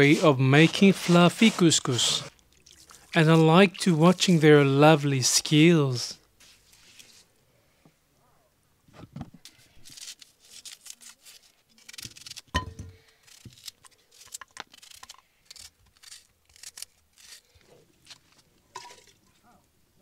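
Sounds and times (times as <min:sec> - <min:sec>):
knife slicing onion: 0:00.0 - 0:02.3
onion skin tearing: 0:09.4 - 0:19.2.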